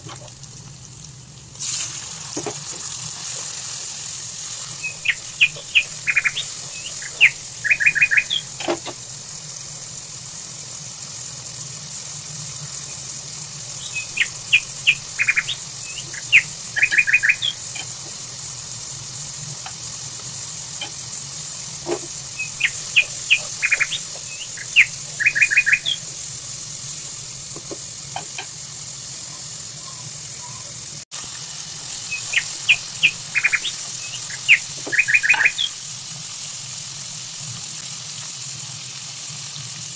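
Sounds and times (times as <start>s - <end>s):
steady hiss: 0.0s - 39.9s
songbird chirping and trilling: 4.8s - 8.5s, 13.8s - 17.9s, 22.3s - 26.1s, 32.1s - 35.8s.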